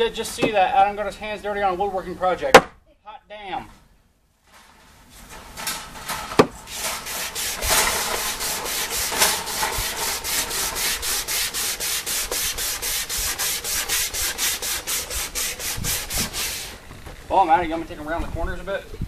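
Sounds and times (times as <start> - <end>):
sandpaper rubbing on wood: 6.7 - 16.8.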